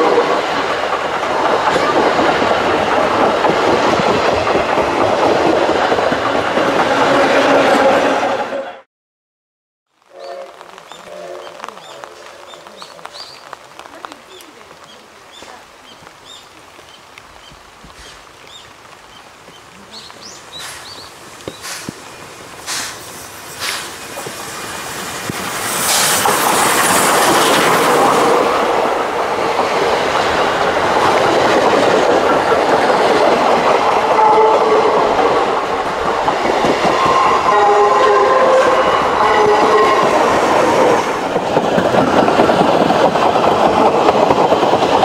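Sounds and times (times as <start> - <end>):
steam locomotive knocking: 0.0 - 7.8, 20.5 - 22.0, 22.6 - 45.0
train wheels clattering over rail joints: 0.5 - 7.0, 22.7 - 34.1, 41.2 - 45.0
steam hiss: 17.8 - 18.3, 20.4 - 33.6.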